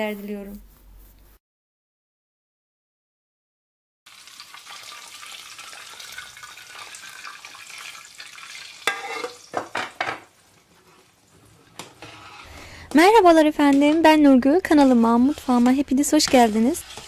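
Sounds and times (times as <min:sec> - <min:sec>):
stirring in pot: 0:10.7 - 0:17.0.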